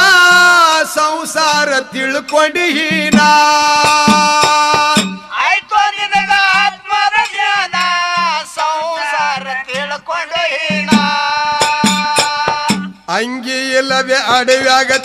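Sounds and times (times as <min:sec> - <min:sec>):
steady drum beat: 0:01.5 - 0:08.4, 0:10.6 - 0:13.2.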